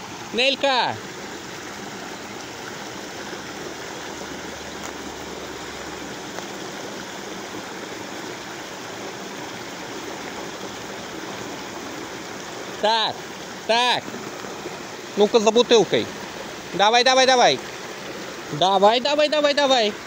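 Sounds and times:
stream water rushing: 0.0s - 20.0s.

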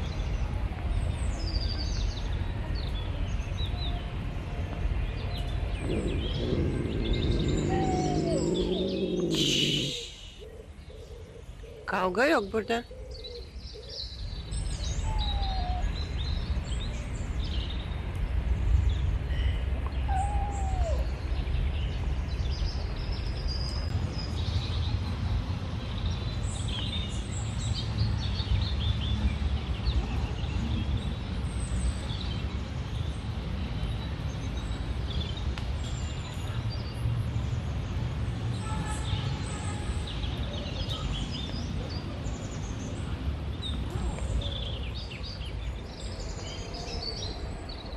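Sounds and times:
steady low rumble: 4.8s - 10.4s
small birds chirping: 4.8s - 24.9s.

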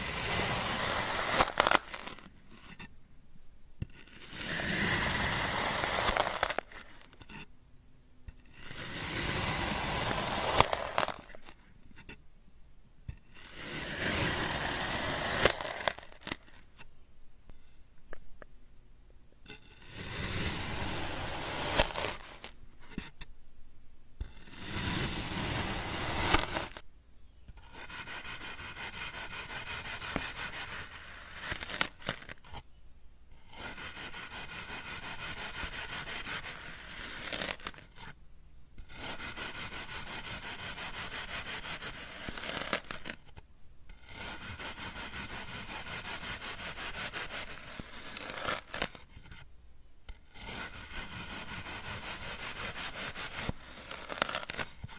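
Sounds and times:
knife slicing through foam: 0.0s - 2.9s, 3.8s - 7.5s, 8.3s - 12.2s, 13.1s - 16.7s, 19.5s - 23.2s, 24.2s - 26.8s, 27.6s - 32.6s, 33.3s - 38.2s, 38.8s - 43.3s, 43.9s - 49.5s, 50.1s - 54.9s.

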